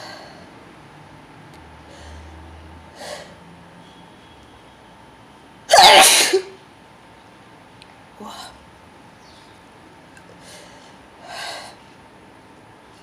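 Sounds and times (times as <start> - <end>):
man sneezing loudly: 5.7 - 6.5.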